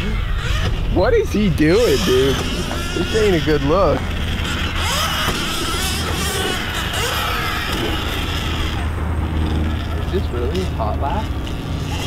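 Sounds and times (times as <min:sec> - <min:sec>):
electric dirt bike motor whining: 0:00.0 - 0:12.0
steady low hum: 0:00.0 - 0:12.0.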